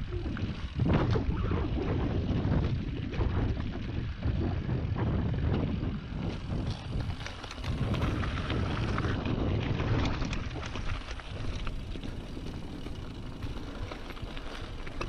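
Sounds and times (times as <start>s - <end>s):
bike rattling: 0.0s - 15.0s
wind buffeting microphone: 0.0s - 15.0s
tyres crunching over stones: 6.4s - 15.0s.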